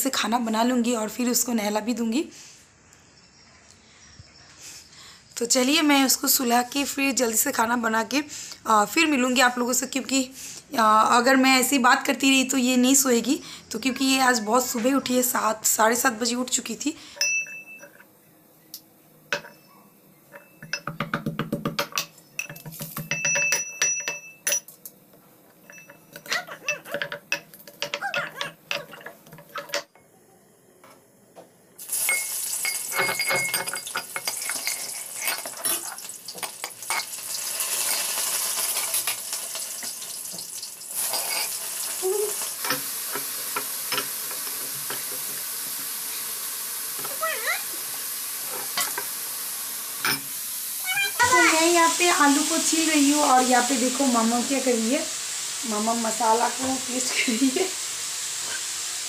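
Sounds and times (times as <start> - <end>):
food sizzling in a pan: 5.4 - 17.0, 31.8 - 59.0
metal utensils clinking: 17.2 - 18.1, 19.3 - 21.0, 21.8 - 25.0, 25.6 - 29.9, 31.9 - 40.0, 41.0 - 41.7, 42.3 - 45.4, 50.0 - 50.3.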